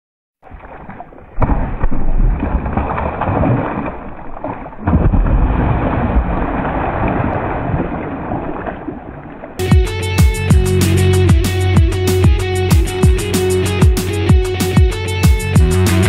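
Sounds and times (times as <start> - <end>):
fish thrashing in water: 0.4 - 9.6.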